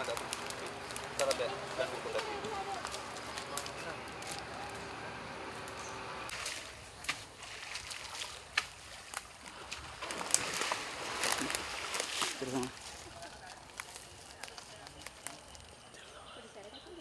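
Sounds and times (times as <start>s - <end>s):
elephant wading through water: 0.0s - 15.4s
short sharp splashes: 9.7s - 12.8s.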